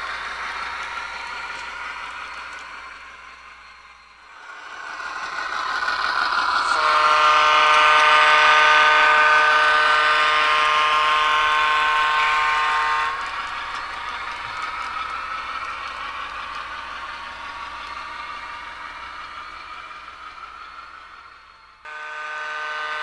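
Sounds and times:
diesel engine sound: 0:00.0 - 0:23.0
chime air horn: 0:21.9 - 0:23.0.

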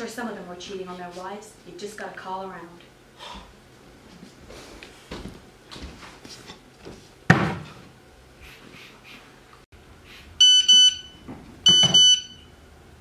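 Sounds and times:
phone text message beeps: 0:10.4 - 0:12.4.

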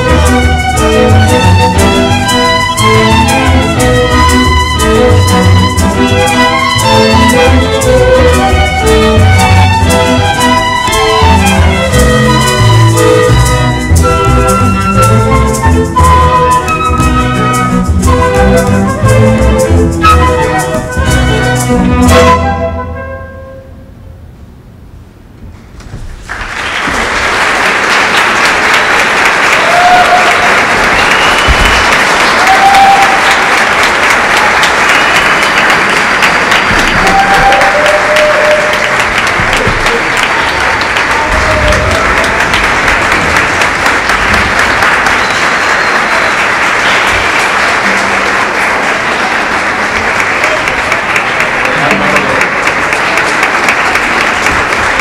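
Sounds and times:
audience applause: 0:26.1 - 0:55.0
shouted cheers: 0:29.5 - 0:35.2, 0:36.6 - 0:42.7.

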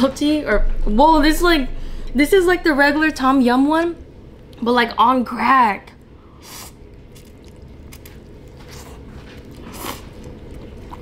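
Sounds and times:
person slurping noodles: 0:06.4 - 0:06.8, 0:08.6 - 0:11.0
person chewing: 0:06.4 - 0:11.0.

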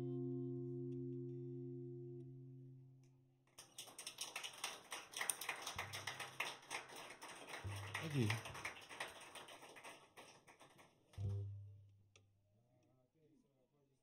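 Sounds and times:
audience clapping: 0:03.5 - 0:11.2.

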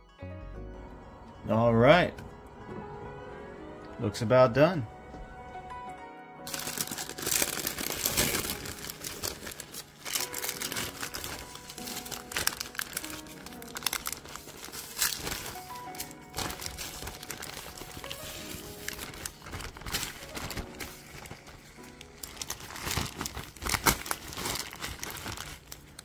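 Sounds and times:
background music: 0:00.0 - 0:26.0
parchment crinkling and rustling: 0:06.5 - 0:26.0.

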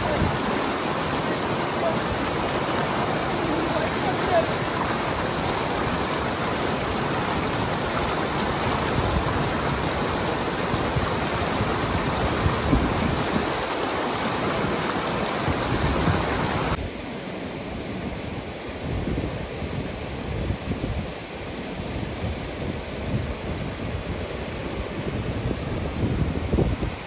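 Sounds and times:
river water rushing: 0:00.0 - 0:17.7.

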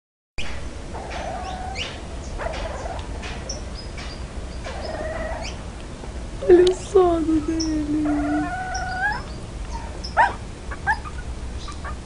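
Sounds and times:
puppy barking and growling: 0:08.0 - 0:12.0.

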